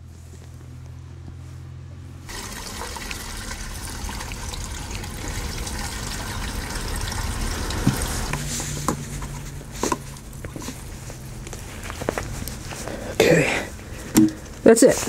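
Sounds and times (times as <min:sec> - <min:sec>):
low steady hum: 0:00.0 - 0:14.7
gasoline pouring through a funnel: 0:02.3 - 0:12.9.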